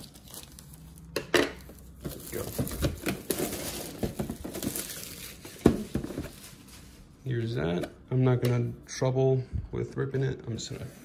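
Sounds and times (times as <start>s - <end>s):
plastic crinkling: 0.0s - 7.1s.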